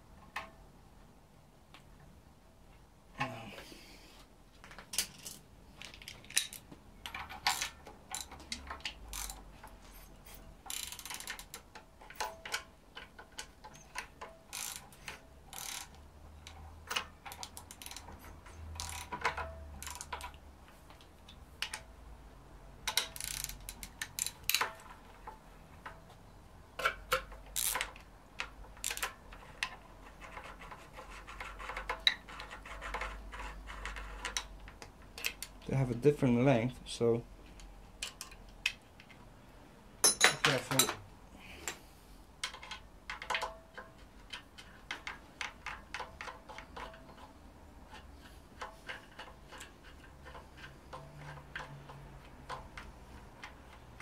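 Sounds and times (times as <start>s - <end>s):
socket ratchet clicking: 6.2s - 9.8s, 10.6s - 20.4s, 22.8s - 24.8s, 26.8s - 29.2s.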